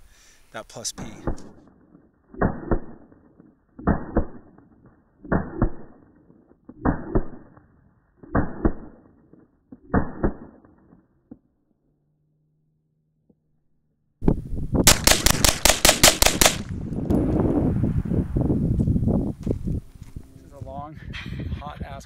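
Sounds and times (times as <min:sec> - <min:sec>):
rifle gunshots: 0:01.0 - 0:03.2, 0:03.8 - 0:04.6, 0:05.2 - 0:06.0, 0:09.8 - 0:10.8, 0:14.8 - 0:17.3.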